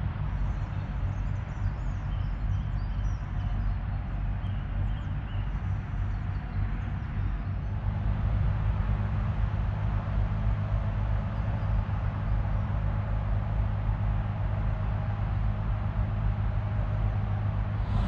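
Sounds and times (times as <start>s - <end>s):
tyres on tarmac road noise: 7.7s - 18.0s.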